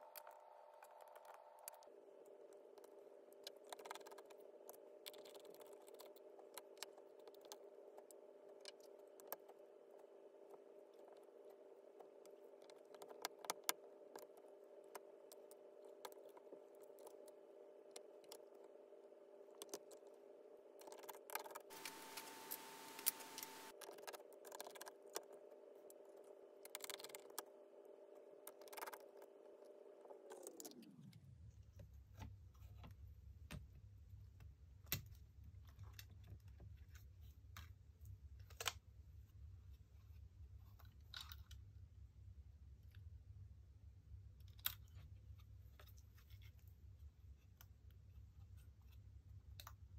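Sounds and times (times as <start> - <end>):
steady hum: 21.7 - 23.8.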